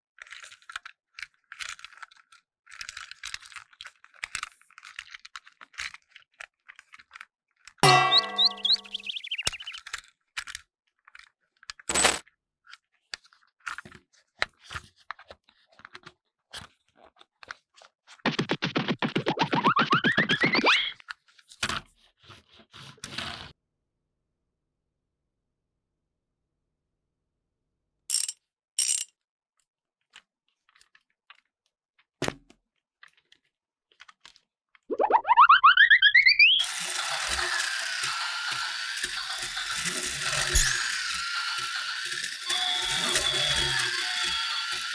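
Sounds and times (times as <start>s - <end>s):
plastic toy trains clicking and rattling: 0.2s - 7.8s, 36.6s - 44.9s.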